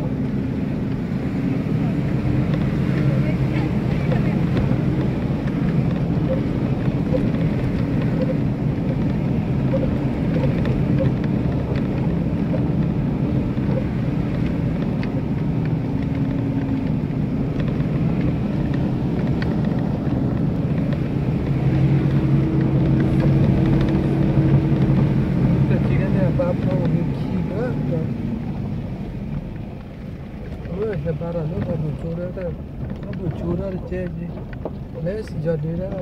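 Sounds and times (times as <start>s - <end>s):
vehicle engine humming: 0.0s - 36.0s
faint clicks and rattles: 2.4s - 36.0s.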